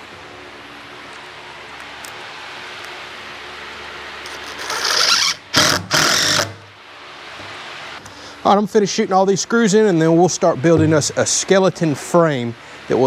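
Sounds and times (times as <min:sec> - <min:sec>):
cordless driver driving screws: 0:04.3 - 0:06.6.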